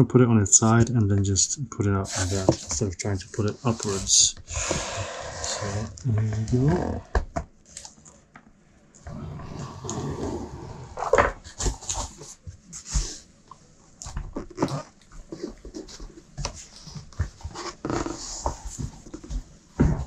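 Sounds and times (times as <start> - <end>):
cardboard scraping and rubbing: 2.1 - 5.9, 14.4 - 19.2.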